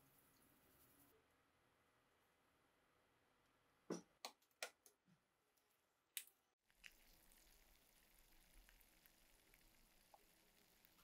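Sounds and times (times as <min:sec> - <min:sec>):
bubbles fizzing: 0:06.7 - 0:11.0.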